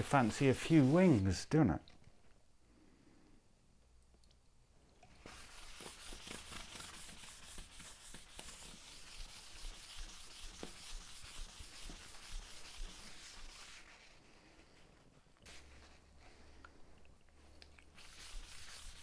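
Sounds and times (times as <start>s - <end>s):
cloth pad rubbing wood: 0.0s - 1.2s, 5.2s - 14.8s, 18.0s - 19.0s.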